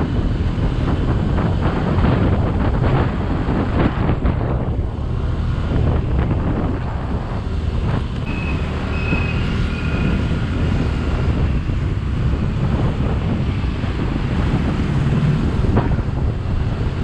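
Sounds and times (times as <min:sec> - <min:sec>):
road noise: 0:00.0 - 0:17.0
wind buffeting microphone: 0:00.0 - 0:17.0.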